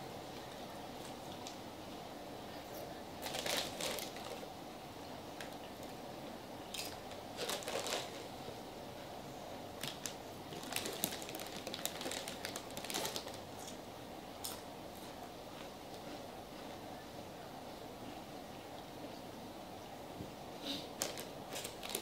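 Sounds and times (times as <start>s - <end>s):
chip bag crinkling: 3.2s - 4.4s, 6.7s - 8.3s, 9.8s - 13.8s, 21.0s - 22.0s.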